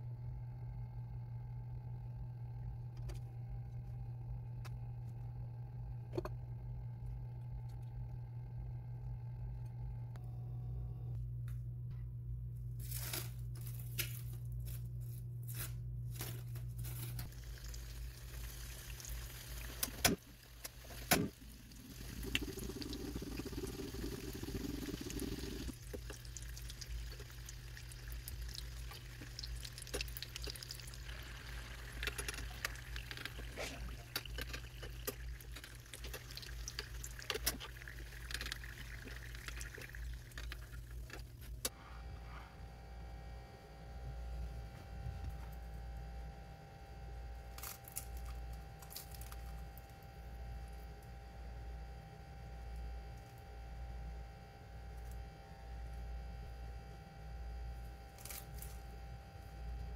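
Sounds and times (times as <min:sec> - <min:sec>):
oil sizzling while deep-frying: 0:17.3 - 0:41.0.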